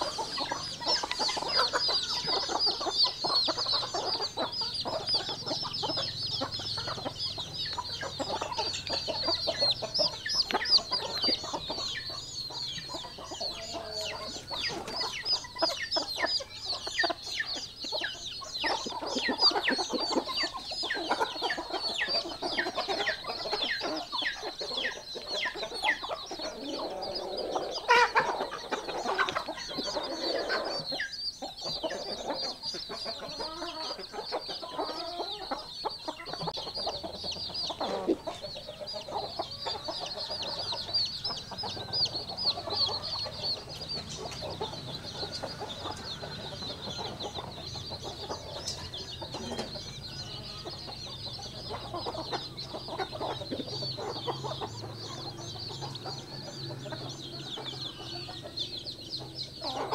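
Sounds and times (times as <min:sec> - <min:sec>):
chicks peeping: 0:00.0 - 0:59.9
hens clucking: 0:00.0 - 0:59.9.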